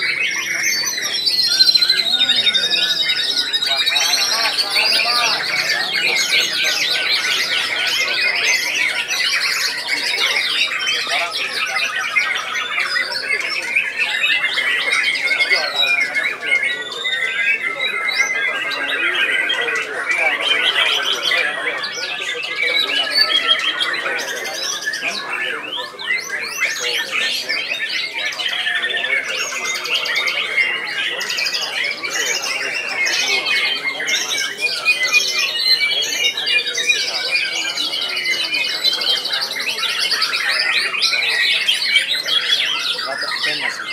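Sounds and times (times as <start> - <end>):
birds singing rapid whistled phrases: 0.0 - 43.9.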